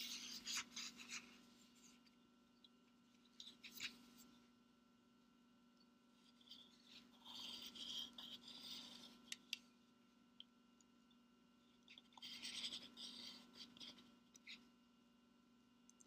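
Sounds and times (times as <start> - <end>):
pencil scratching paper: 0.0 - 2.0, 6.5 - 9.2, 12.2 - 14.7.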